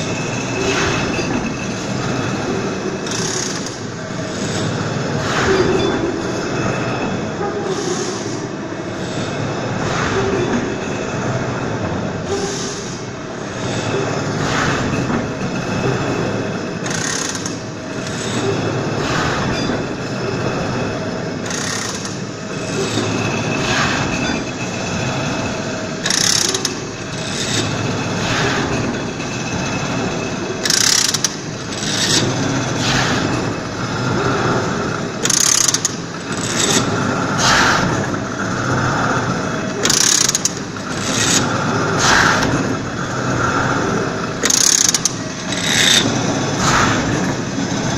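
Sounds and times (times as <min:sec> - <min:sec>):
sharp mechanical bursts: 0:03.0 - 0:04.6, 0:16.8 - 0:18.4, 0:21.4 - 0:22.3, 0:26.0 - 0:27.8, 0:30.6 - 0:33.4, 0:35.1 - 0:38.0, 0:39.7 - 0:43.2, 0:44.3 - 0:47.2
machine clattering: 0:13.6 - 0:47.9.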